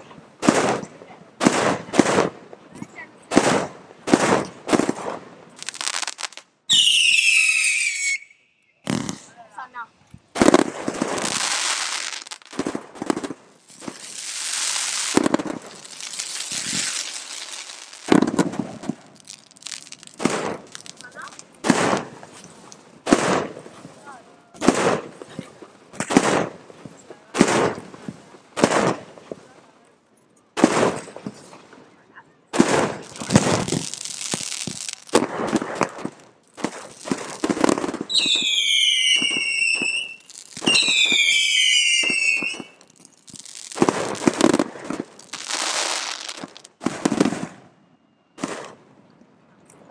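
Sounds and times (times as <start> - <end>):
rapid firework shots: 0.0 - 2.4, 3.3 - 6.1, 10.4 - 22.3, 23.0 - 23.8, 24.6 - 26.6, 27.4 - 27.8, 28.6 - 29.4, 30.6 - 31.4, 32.5 - 41.4, 43.7 - 47.6, 48.4 - 48.8
firework bangs: 0.0 - 8.2, 8.8 - 29.6, 30.6 - 31.8, 32.5 - 47.8, 48.4 - 48.9
firework whistle falling in pitch: 6.7 - 8.8, 38.1 - 42.8.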